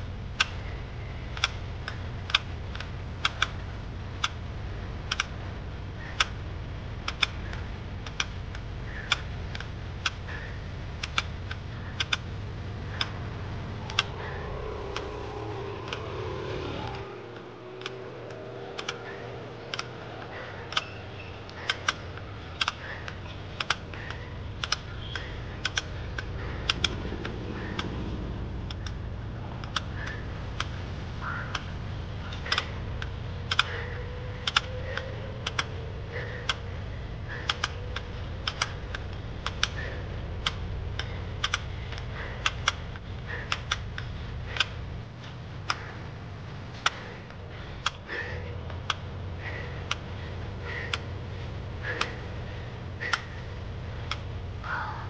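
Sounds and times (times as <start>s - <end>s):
bike clicks and ticks: 0.0s - 54.8s
steady low rumble: 0.0s - 55.0s.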